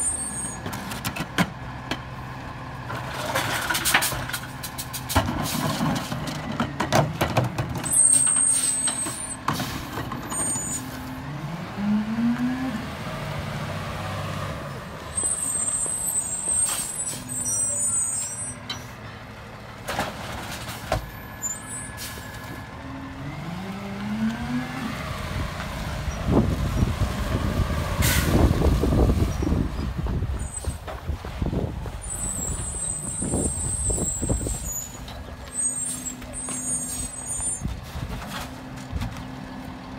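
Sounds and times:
diesel engine revving: 0.0 - 18.6, 19.2 - 39.9
air brakes hissing: 21.4 - 22.4, 28.0 - 28.5, 32.0 - 35.0.

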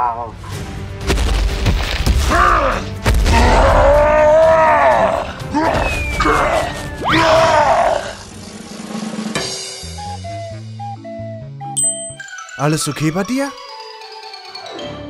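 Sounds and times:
background music: 0.0 - 15.0
man groaning and grunting: 2.3 - 8.2
whistle tone gliding down: 9.8 - 13.3.

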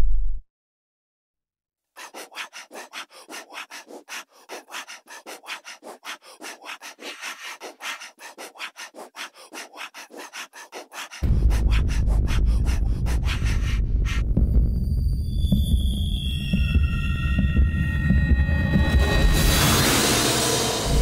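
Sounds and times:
rhythmic rasping: 2.0 - 14.9.

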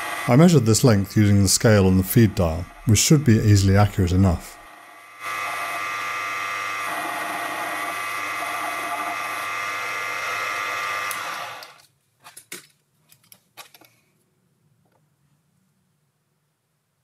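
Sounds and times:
metal lathe whine: 0.0 - 11.8.

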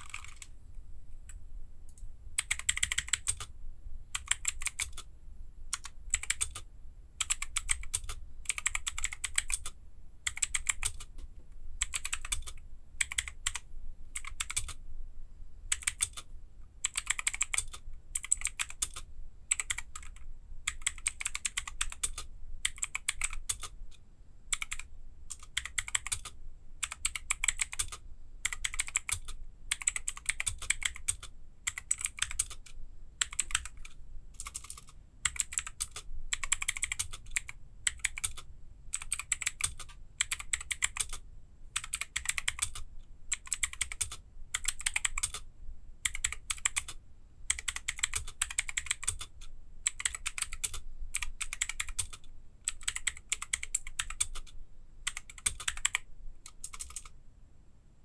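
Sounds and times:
mechanical keyboard key clicks: 55.1 - 57.1.

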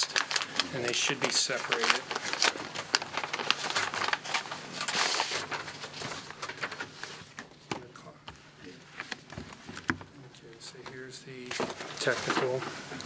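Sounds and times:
paper rustling and crinkling: 0.0 - 7.8, 10.8 - 13.0.

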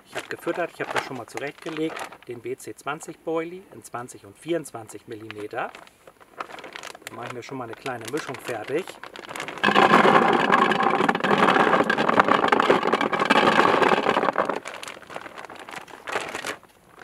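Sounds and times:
plastic bag rustling: 0.0 - 2.6, 5.1 - 17.0
baits rattling into plastic bucket: 6.4 - 17.0.

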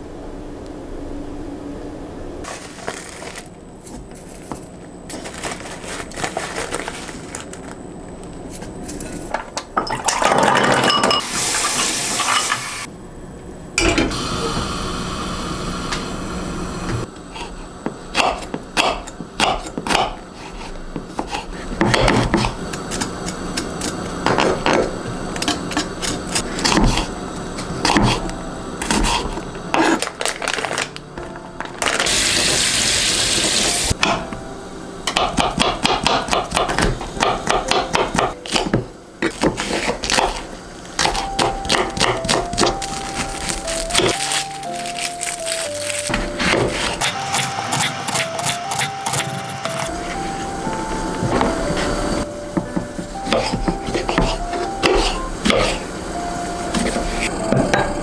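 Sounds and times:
soft background music: 28.2 - 32.3, 33.8 - 39.0, 41.0 - 58.0.

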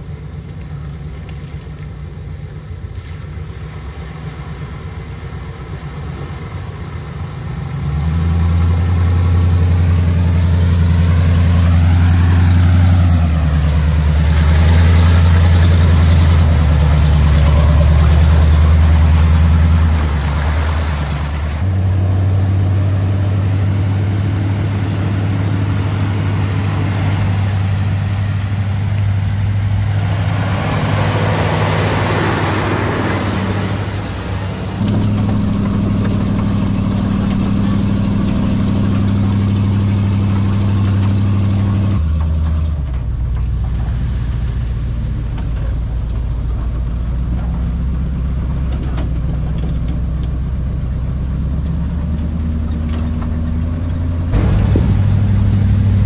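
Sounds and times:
off-road engines running: 0.0 - 56.0
rising and falling whine: 21.6 - 42.0, 54.3 - 56.0.

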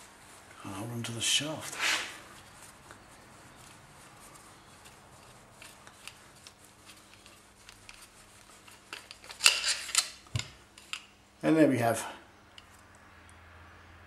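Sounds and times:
faint rubbing: 0.0 - 10.2
light clicks of metal parts: 4.7 - 11.2, 12.4 - 13.4
metal parts clattering: 8.6 - 11.1.

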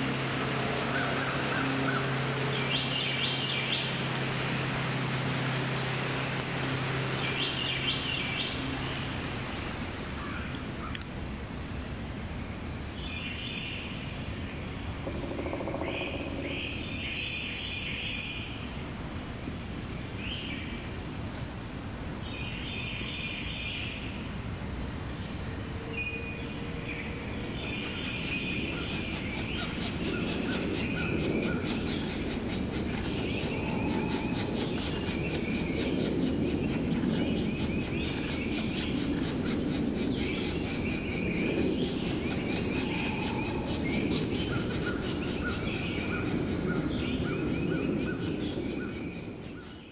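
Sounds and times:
high-pitched insect drone: 0.0 - 49.9.

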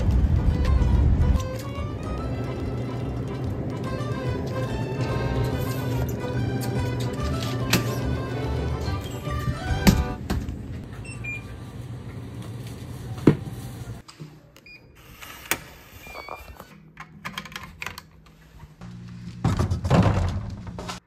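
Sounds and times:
soft background music: 0.3 - 10.2.

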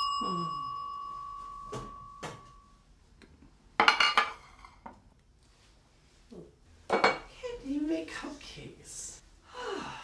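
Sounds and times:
bell ding: 0.0 - 2.7
plate clattering on countertop: 3.8 - 5.0.

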